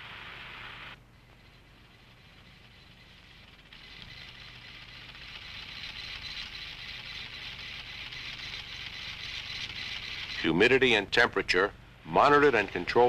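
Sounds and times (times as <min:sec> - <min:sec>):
faint low hum: 0:00.0 - 0:13.0
line printer hissing: 0:02.2 - 0:10.6, 0:12.2 - 0:13.0.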